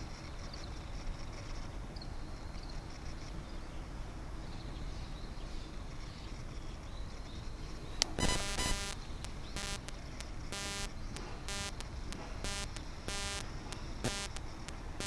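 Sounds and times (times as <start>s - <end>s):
faint high chirps: 8.0s - 14.8s.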